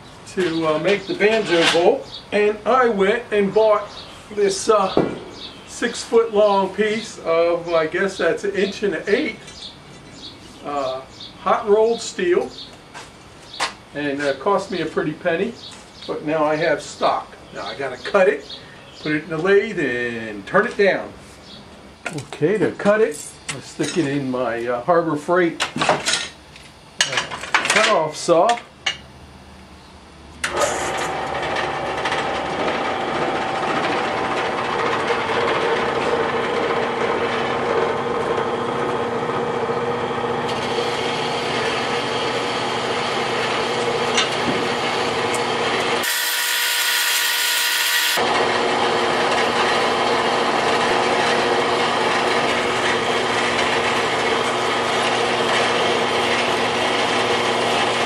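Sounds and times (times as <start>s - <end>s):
band saw cutting steel: 30.4s - 58.0s.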